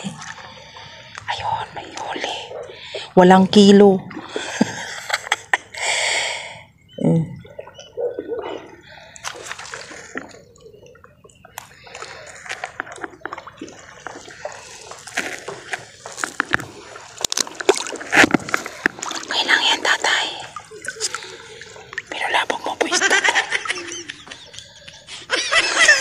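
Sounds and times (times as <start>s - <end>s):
water splashing at shoreline: 0.0s - 5.5s, 7.4s - 26.0s
wet clicks and rustles: 8.5s - 23.0s.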